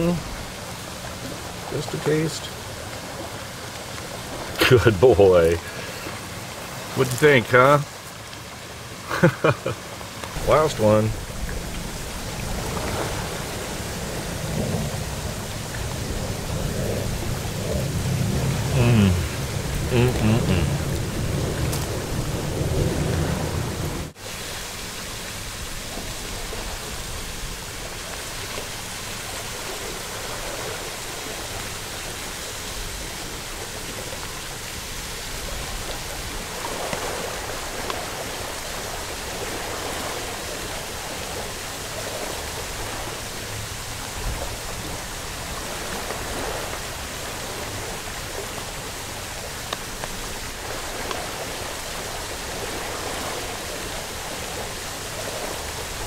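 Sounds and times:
water hissing: 0.0 - 8.2.

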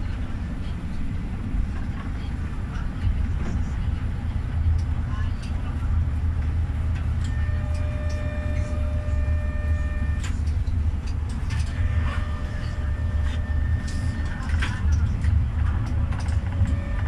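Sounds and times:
tram rumbling on track: 0.0 - 17.0
multi-tone whine: 7.2 - 15.0.

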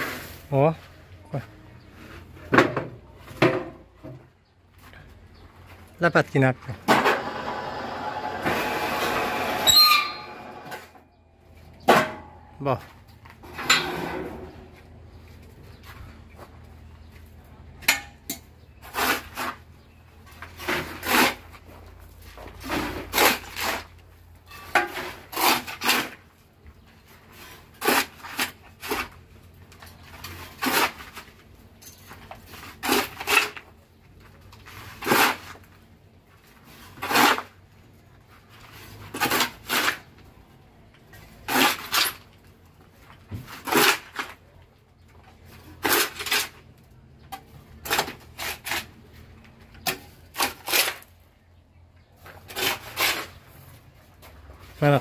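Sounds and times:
shovel scraping: 0.0 - 0.7, 18.8 - 26.3, 27.2 - 29.3, 30.0 - 31.4, 32.4 - 33.8, 34.6 - 35.8, 36.5 - 37.6, 38.4 - 40.1, 41.2 - 42.3, 43.4 - 44.4, 45.4 - 46.7, 47.7 - 51.2, 52.2 - 53.8.

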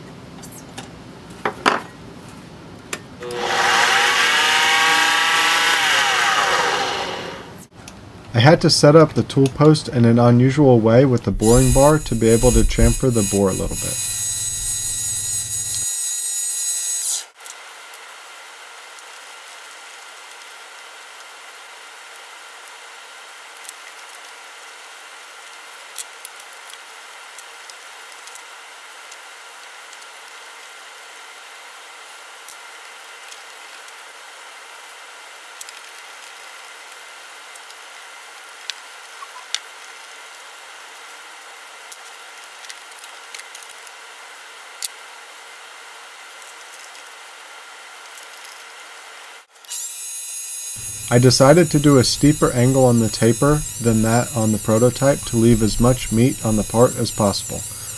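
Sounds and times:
lathe machining whine: 3.2 - 7.6, 11.3 - 16.0, 49.7 - 57.9
faint steady hum: 50.8 - 57.9.

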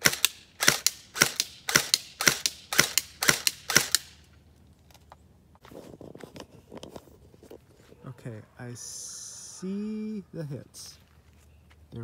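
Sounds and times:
airsoft gun firing: 0.0 - 4.2.

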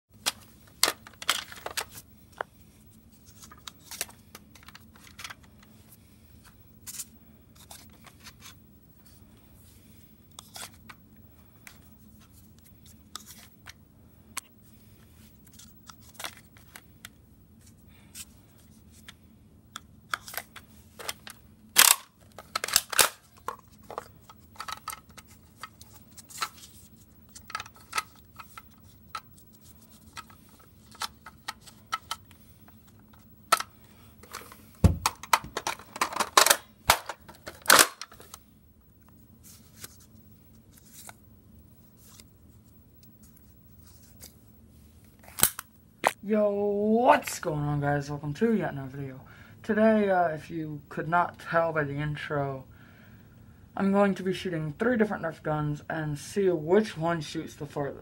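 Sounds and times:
plastic toy blaster clicks and rattles: 21.0 - 23.5.

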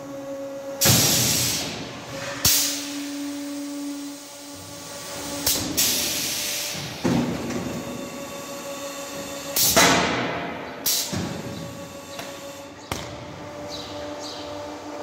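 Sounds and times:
machine motor hum: 0.0 - 15.0
pneumatic actuator clunks: 0.8 - 3.4, 5.2 - 8.2, 9.1 - 13.1
compressed air hiss: 0.8 - 7.0.

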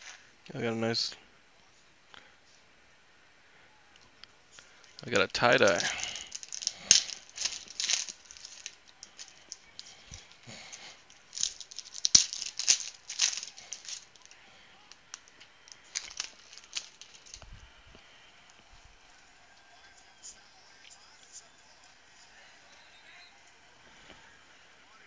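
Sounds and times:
foil wrapper crinkling: 4.6 - 17.5.

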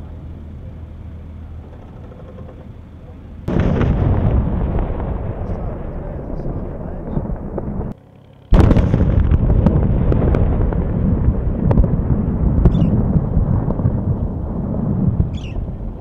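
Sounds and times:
low rumble with crackles: 0.0 - 16.0
explosion blast: 3.5 - 16.0.

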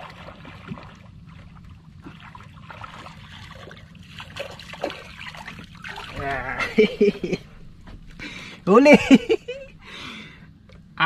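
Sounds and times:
water splashing against boat: 0.0 - 7.6.

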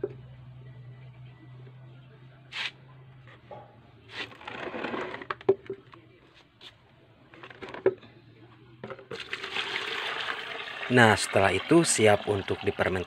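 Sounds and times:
plastic basin handling noise: 4.1 - 5.8.

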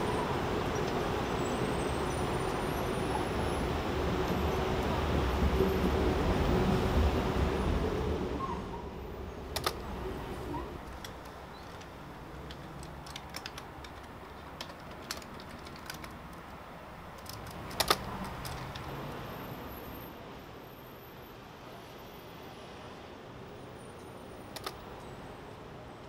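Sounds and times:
computer keyboard key clicks: 9.6 - 9.8, 10.9 - 16.5, 17.2 - 18.9, 24.6 - 24.8.

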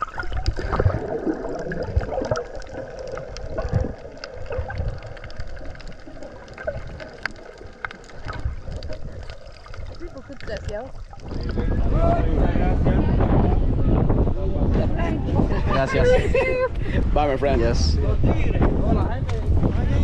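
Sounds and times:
underwater water sloshing: 0.0 - 12.0
low underwater thumps: 0.0 - 15.5.

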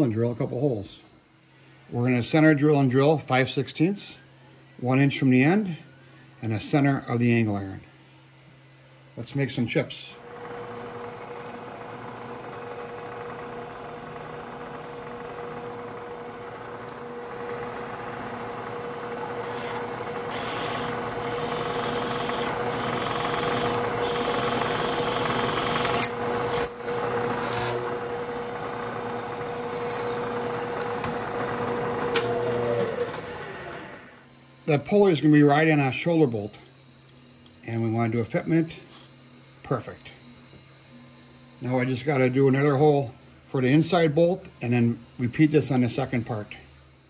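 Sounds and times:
milling machine spindle whining: 10.1 - 47.0
drill cutting into metal: 10.2 - 34.8.

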